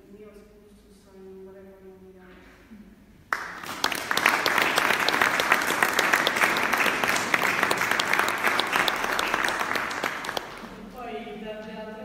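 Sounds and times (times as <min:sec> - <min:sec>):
audience applauding: 0:03.3 - 0:10.8.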